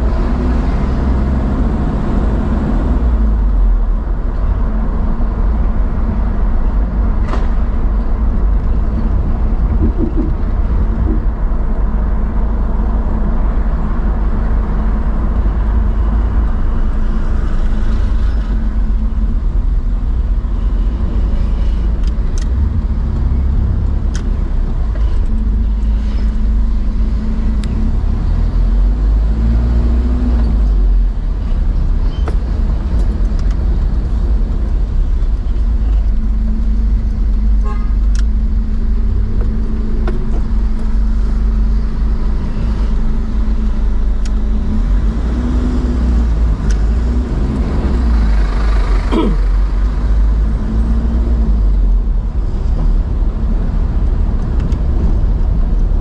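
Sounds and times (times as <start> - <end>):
car engine and road rumble: 0.0 - 56.0
constant hum: 3.0 - 29.2, 30.4 - 56.0.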